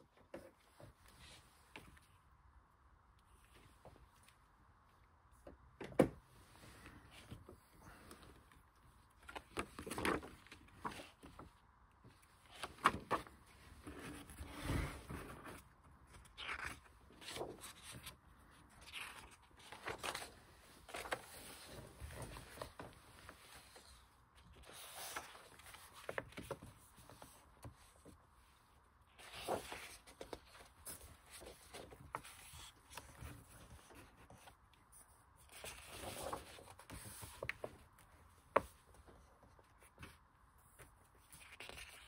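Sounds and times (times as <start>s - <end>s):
book pages turning: 6.8s - 11.5s, 12.1s - 28.2s, 29.1s - 42.0s.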